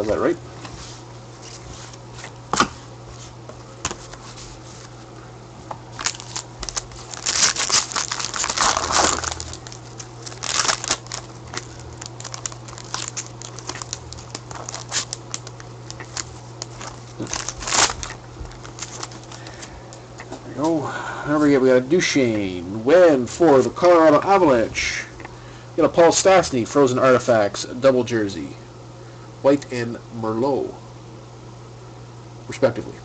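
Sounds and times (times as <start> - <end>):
cards shuffled and tapped: 3.5 - 4.9
foil wrapper crinkling and tearing: 5.9 - 19.7.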